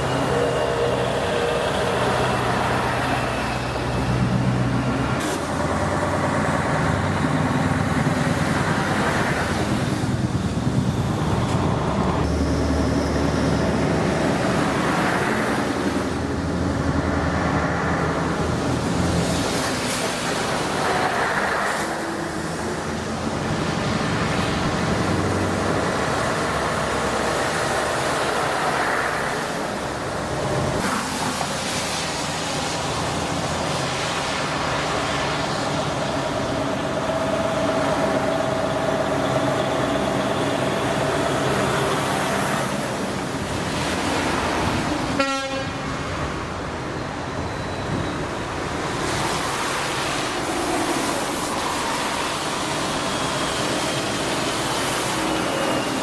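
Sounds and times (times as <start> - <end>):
diesel truck engines driving by: 0.0 - 56.0.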